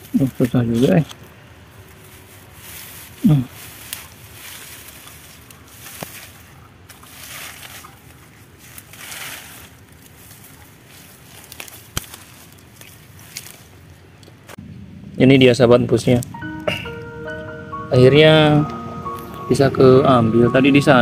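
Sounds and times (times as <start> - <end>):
stick raking dry leaves: 0.1 - 14.0.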